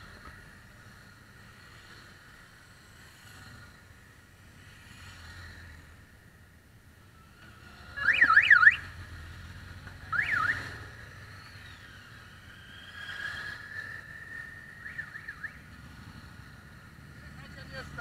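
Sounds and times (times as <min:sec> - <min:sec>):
motorcycle engines running: 0:00.0 - 0:18.0
electronic siren wailing: 0:07.7 - 0:09.0, 0:10.0 - 0:15.8.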